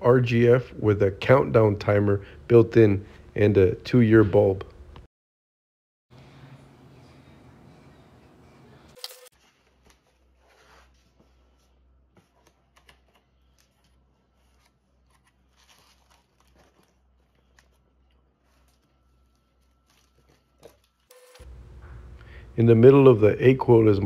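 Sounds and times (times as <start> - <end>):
foam packing rustling: 12.3 - 21.4.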